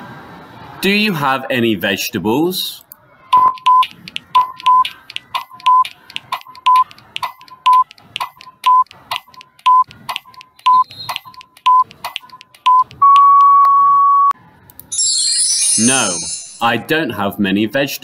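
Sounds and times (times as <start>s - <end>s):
short beeps: 3.3s - 4.9s, 12.7s - 14.4s
long steady beep: 3.4s - 4.9s
timer ticking: 3.4s - 13.7s.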